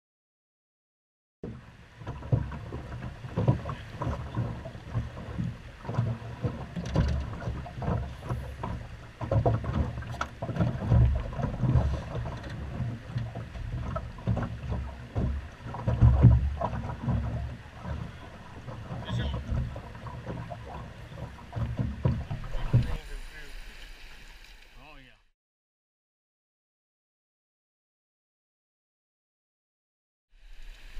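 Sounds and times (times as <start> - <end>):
water slapping against boat hull: 1.4 - 24.8
steady low rumble: 22.2 - 24.8.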